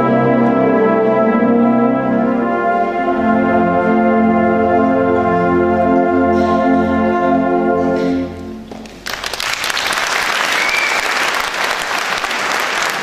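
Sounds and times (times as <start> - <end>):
audience applause: 8.8 - 13.0.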